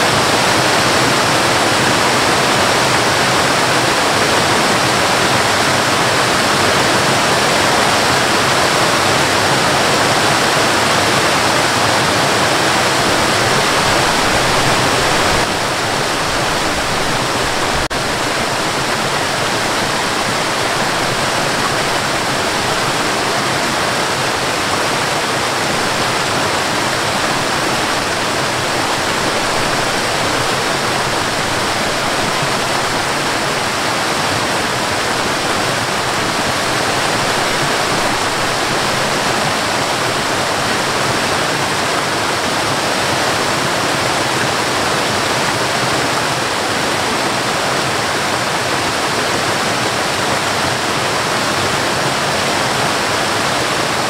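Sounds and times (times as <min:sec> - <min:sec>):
waterfall splashing: 0:00.0 - 0:54.0.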